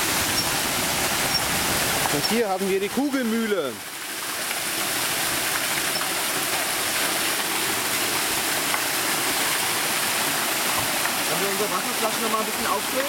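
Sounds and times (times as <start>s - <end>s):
water gushing and splashing: 0.0s - 13.0s.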